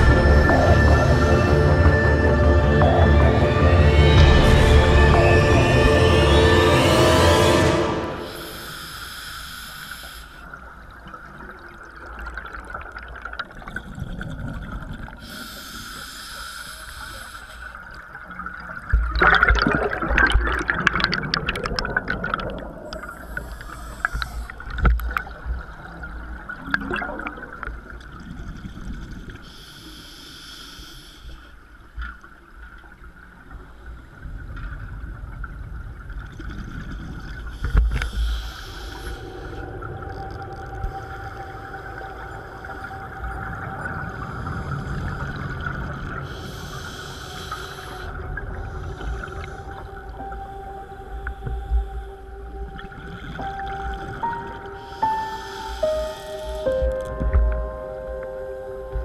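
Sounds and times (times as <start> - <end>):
regulator hiss on inhale: 8.3 - 10.7, 15.2 - 18.0, 22.9 - 24.7, 29.3 - 31.7, 37.3 - 39.6, 46.2 - 49.9, 54.7 - 56.8
exhaled bubbles gurgling: 10.5 - 15.5, 17.8 - 29.5.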